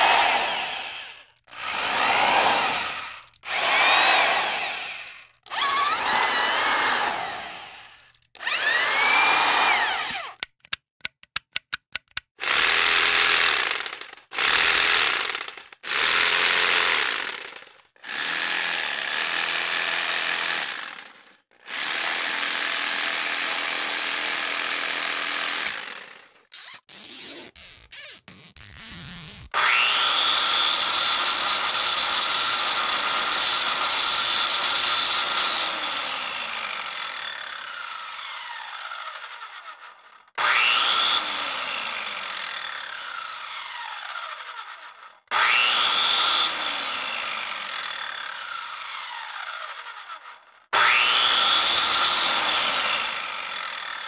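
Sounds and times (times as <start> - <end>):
power tool motor spinning down: 0.0 - 10.4, 26.6 - 54.0.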